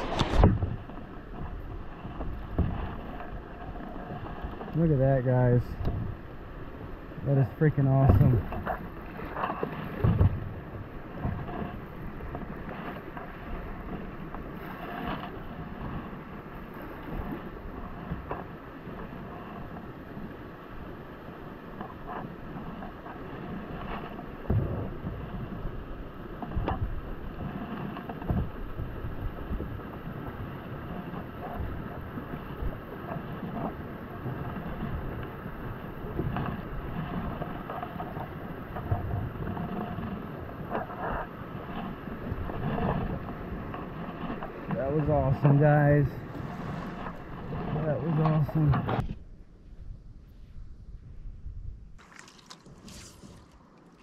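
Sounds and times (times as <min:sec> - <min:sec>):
wind buffeting microphone: 0:00.0 - 0:21.1, 0:22.3 - 0:52.0
water around kayak: 0:00.0 - 0:54.0
soft knocks and splashes: 0:52.0 - 0:54.0.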